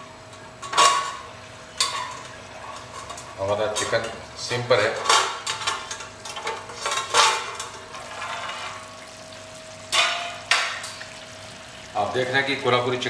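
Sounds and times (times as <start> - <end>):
steel lid clattering: 0.3 - 9.0, 9.9 - 11.0.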